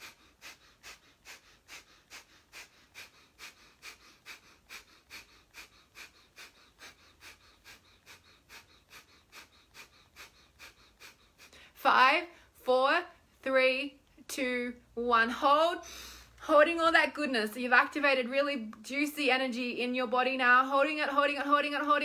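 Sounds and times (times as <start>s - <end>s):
quick forceful nasal exhalations: 0.0s - 11.7s.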